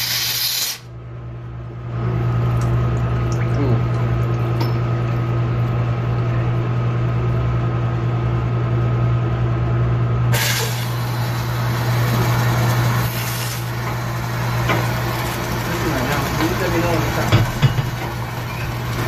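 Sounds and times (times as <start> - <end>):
suction hose drawing water and air: 0.0 - 0.9, 10.3 - 17.3.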